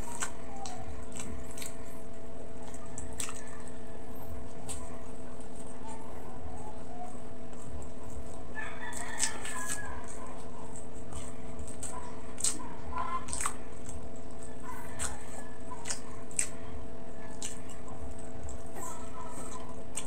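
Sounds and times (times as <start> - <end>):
steady hum: 0.0 - 20.0
wet chewing and lip-smacking: 0.0 - 20.0.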